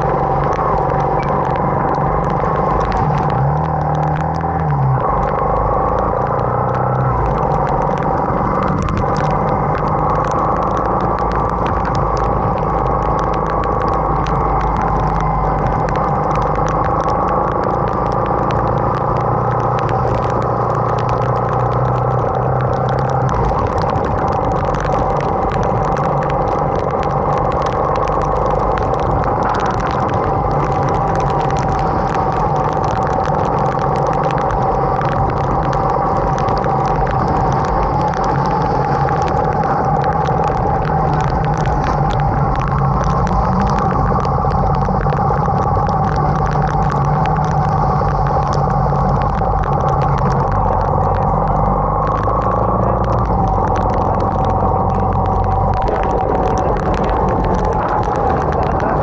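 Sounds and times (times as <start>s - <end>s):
raindrops and spray ticking: 0.0s - 59.0s.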